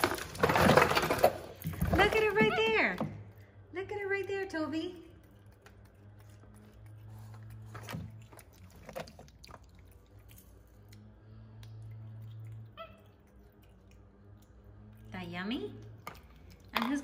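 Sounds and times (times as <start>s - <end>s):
monkey rummaging among plastic toys: 0.0s - 3.4s, 7.2s - 9.7s
low steady hum: 0.0s - 17.0s
monkey chewing: 5.0s - 15.2s, 15.8s - 17.0s.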